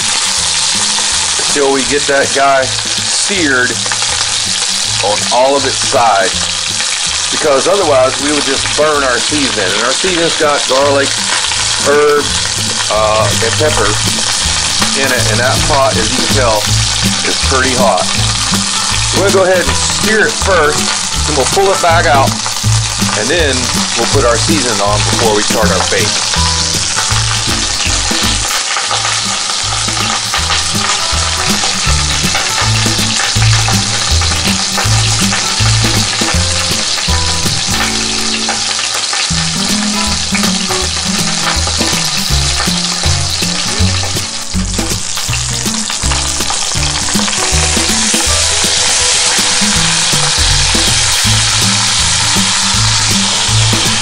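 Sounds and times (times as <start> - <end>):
meat sizzling in oil: 0.0 - 54.0.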